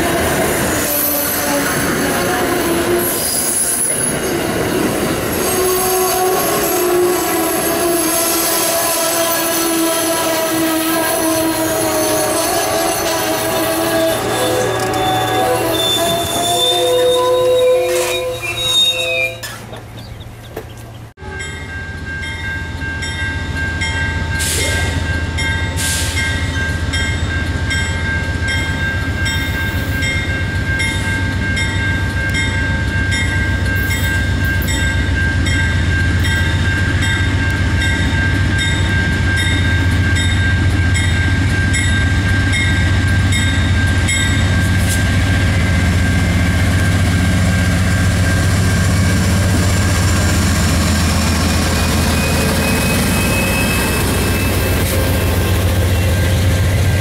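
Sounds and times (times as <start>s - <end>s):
crossing warning bells ringing: 0.0s - 20.4s, 21.2s - 57.0s
locomotive engine rumble: 35.0s - 57.0s.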